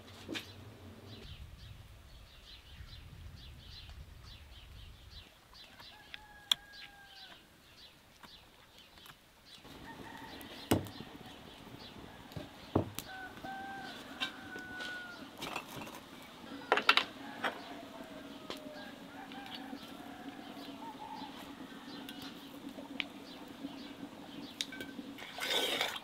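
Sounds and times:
small birds chirping: 0.3s - 15.4s, 16.0s - 25.2s
wood fire crackling: 3.2s - 26.0s
rooster crowing: 5.9s - 7.4s, 9.7s - 11.4s, 12.1s - 15.3s, 16.5s - 22.4s.

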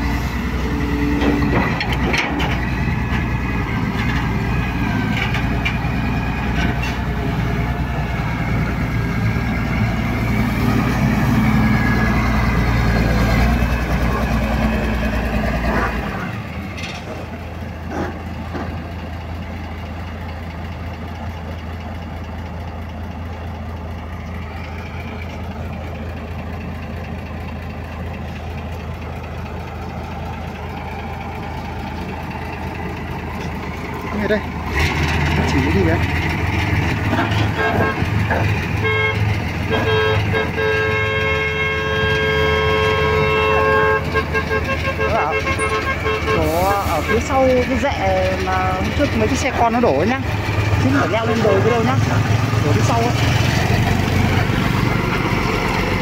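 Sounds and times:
excavator digging and dumping soil: 0.0s - 7.5s, 34.6s - 38.7s
excavator diesel engine working: 0.0s - 56.0s.

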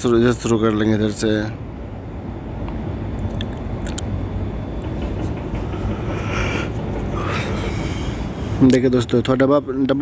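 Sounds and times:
heavy machinery rumbling: 1.5s - 9.3s.

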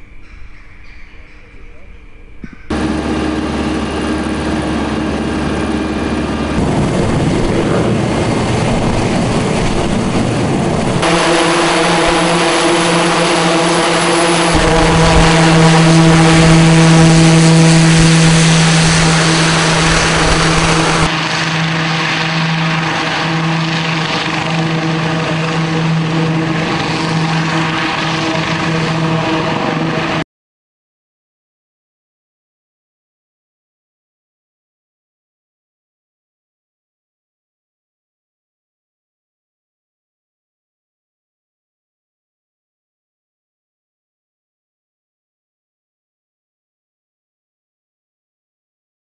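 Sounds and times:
helicopter in flight: 2.5s - 30.2s.

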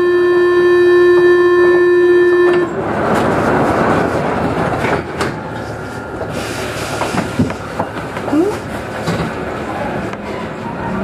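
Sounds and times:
train noise rushing: 2.2s - 11.0s.

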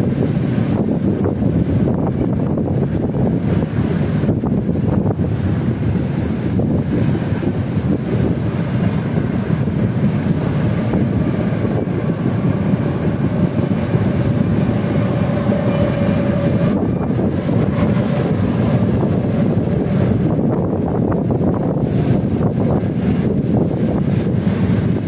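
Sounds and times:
freight train wheels rumbling: 0.0s - 25.0s.

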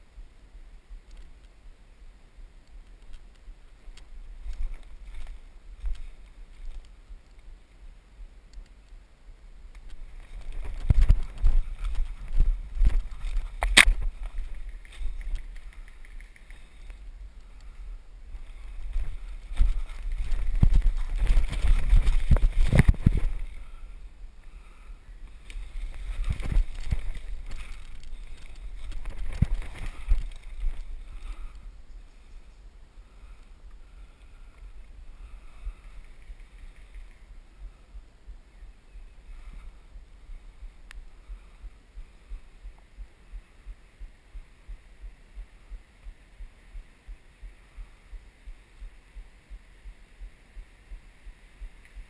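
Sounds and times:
footsteps through undergrowth: 9.8s - 15.6s, 18.3s - 23.8s, 25.3s - 31.5s
clothing rubbing on microphone: 9.9s - 16.9s, 18.4s - 23.8s, 25.6s - 31.5s.

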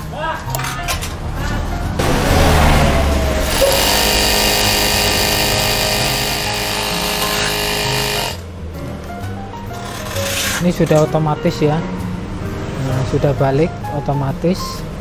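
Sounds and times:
sewing machine whirring: 3.4s - 8.4s.

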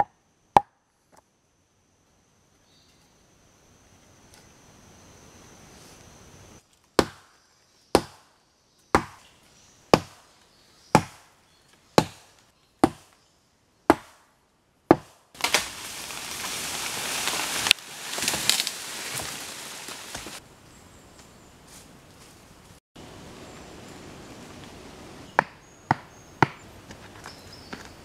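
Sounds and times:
leaves and branches rustling: 2.6s - 8.2s, 15.2s - 28.0s
axe chopping tree trunk: 7.0s - 8.3s, 8.9s - 9.3s, 9.9s - 10.3s, 10.9s - 11.3s, 12.0s - 13.2s, 13.9s - 14.3s, 14.9s - 16.1s, 25.4s - 26.7s
wood cracking: 14.9s - 20.4s.

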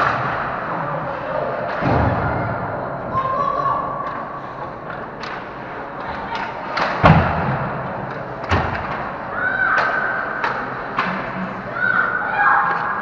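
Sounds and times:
hockey sticks and puck knocking: 4.9s - 11.4s.

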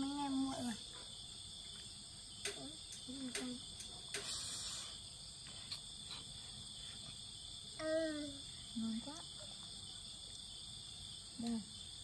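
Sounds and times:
insect chorus chirring: 0.0s - 12.0s
faint clicks: 1.8s - 4.4s.

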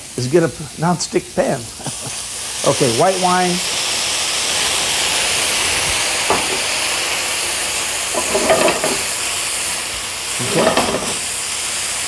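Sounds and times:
food sizzling in a pan: 0.0s - 12.0s
pan or utensil clattering: 6.3s - 6.7s, 8.1s - 9.1s, 10.4s - 11.3s.

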